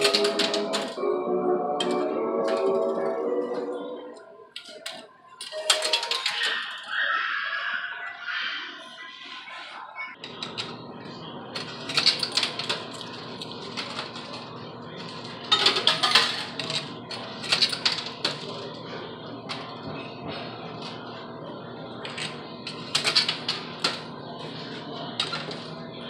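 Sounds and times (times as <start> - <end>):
coins clinking: 0.0 - 1.0, 5.4 - 6.8, 11.9 - 14.0, 15.5 - 16.8.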